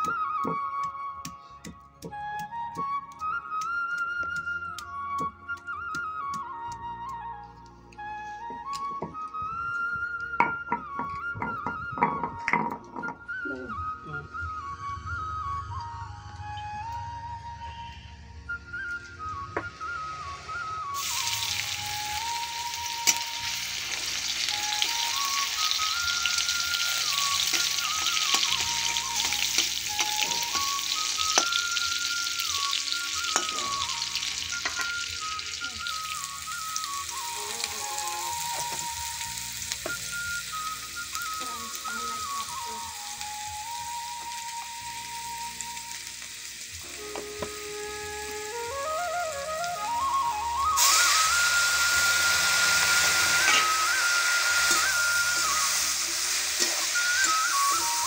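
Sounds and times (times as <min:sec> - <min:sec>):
soft flute melody: 0:00.0 - 0:58.0
garlic sizzling in hot oil: 0:19.8 - 0:58.0.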